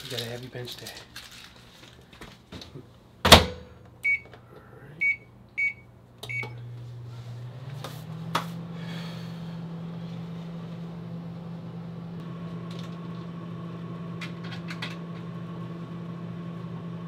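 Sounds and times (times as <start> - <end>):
microwave oven humming: 3.2 - 17.0
microwave door shutting: 3.3 - 3.7
keypad beeps: 4.0 - 4.3, 5.0 - 6.6.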